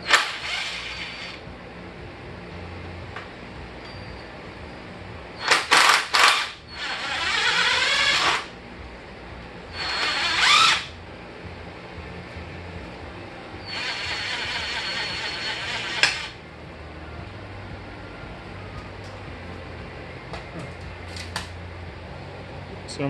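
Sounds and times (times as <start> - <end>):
power drill spinning: 0.0 - 1.4, 5.4 - 8.5, 9.7 - 10.9, 13.6 - 16.4.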